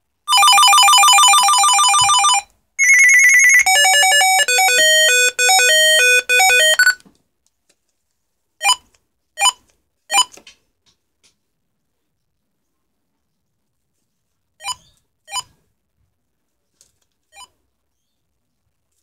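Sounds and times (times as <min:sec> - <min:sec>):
electronic beep melodies: 0:02.3 - 0:07.0.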